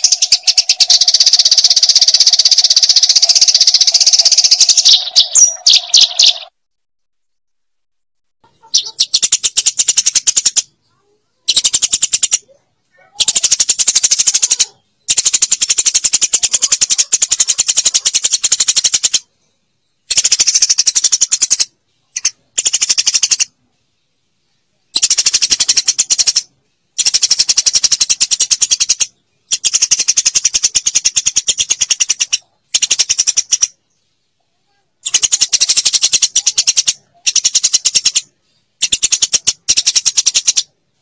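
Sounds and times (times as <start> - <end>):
sparrow chirping: 0.0 - 6.5, 8.4 - 40.8.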